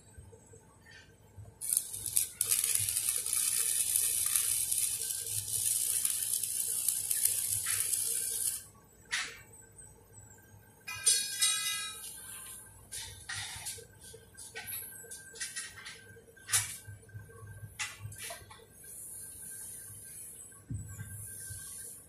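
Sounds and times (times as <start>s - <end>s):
welding arc crackling: 1.6s - 8.7s.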